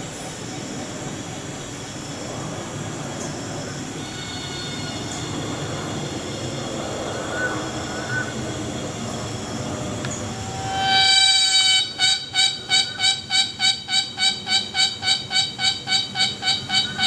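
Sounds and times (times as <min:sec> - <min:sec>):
insect drone: 0:00.0 - 0:17.0
high whining tones: 0:03.9 - 0:17.0
hornbill call: 0:10.2 - 0:17.0.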